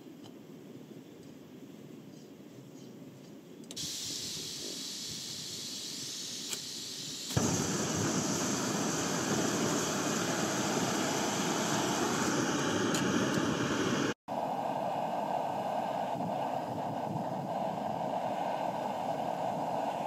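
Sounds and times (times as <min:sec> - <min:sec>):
valve click: 0:03.6 - 0:08.7
gas hissing from stove: 0:03.7 - 0:20.0
burner rushing flame: 0:03.8 - 0:20.0.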